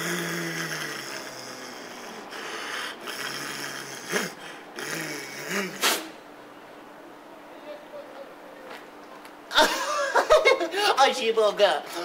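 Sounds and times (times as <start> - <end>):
man growling: 0.0 - 5.8.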